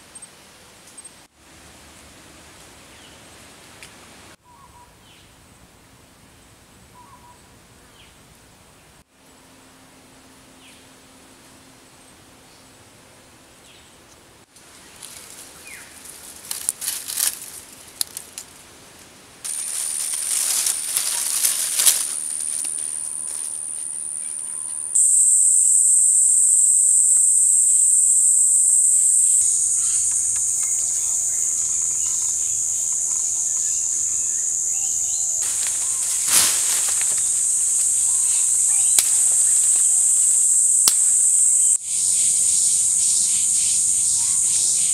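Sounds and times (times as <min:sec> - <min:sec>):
dry leaves rustling: 0:14.6 - 0:25.1, 0:28.7 - 0:41.7
insects droning chorus: 0:19.5 - 0:44.9
sharp snap: 0:40.8 - 0:41.2.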